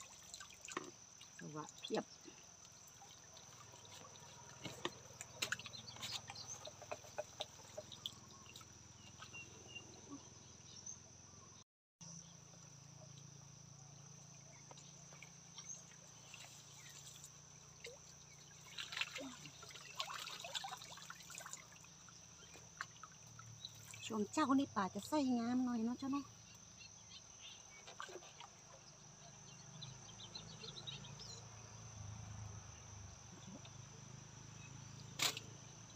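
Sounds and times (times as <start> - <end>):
water dripping from net: 0.0 - 9.3, 15.1 - 24.3
patter of drips and splashes: 0.0 - 9.7, 12.5 - 25.2, 25.8 - 30.0.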